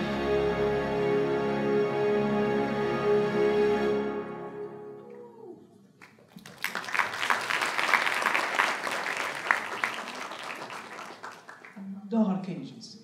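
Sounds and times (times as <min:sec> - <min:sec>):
music: 0:00.0 - 0:05.2
audience applause: 0:06.0 - 0:11.8.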